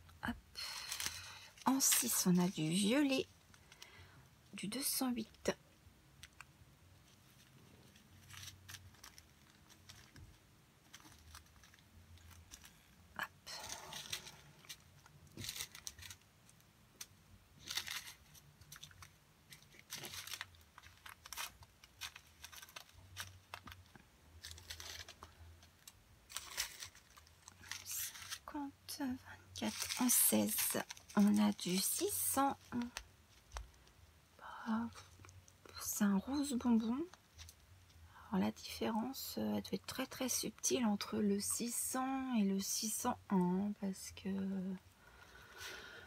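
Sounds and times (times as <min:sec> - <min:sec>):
plastic bags crinkling: 0:00.6 - 0:04.0, 0:07.2 - 0:34.0.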